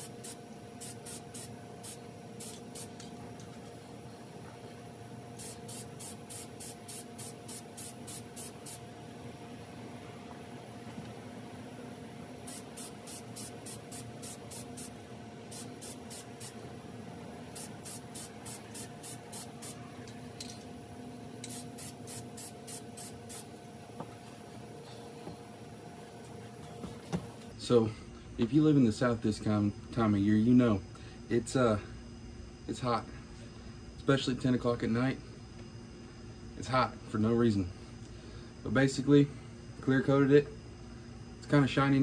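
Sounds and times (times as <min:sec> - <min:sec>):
aerosol spray can bursts: 0:00.0 - 0:03.0, 0:05.4 - 0:08.8, 0:12.4 - 0:16.6, 0:17.5 - 0:19.8, 0:21.4 - 0:23.5
steady hum: 0:00.0 - 0:42.0.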